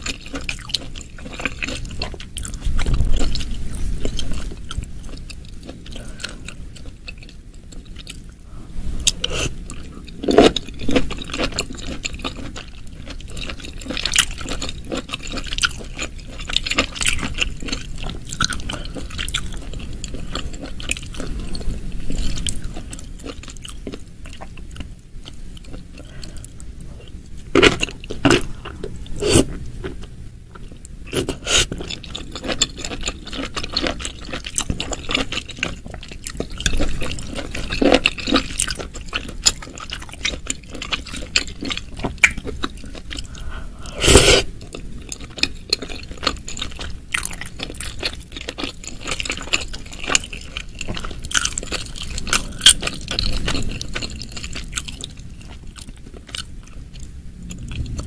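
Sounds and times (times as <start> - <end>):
wet chewing: 0.0 - 8.3, 9.0 - 58.0.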